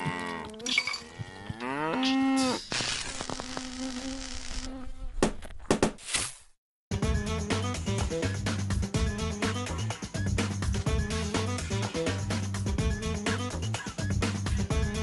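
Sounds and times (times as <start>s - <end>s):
cow mooing: 0.0s - 2.6s.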